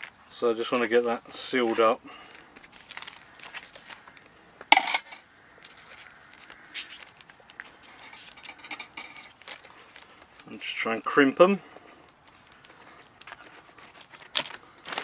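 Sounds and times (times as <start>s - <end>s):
hands handling pastry on paper: 0.0s - 4.4s, 5.6s - 10.8s, 11.6s - 15.0s
metal spoon clinking cup: 4.8s - 5.2s.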